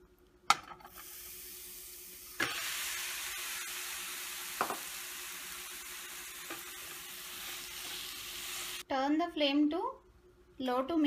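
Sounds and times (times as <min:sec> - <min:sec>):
beetroot sizzling in butter: 0:00.9 - 0:08.9.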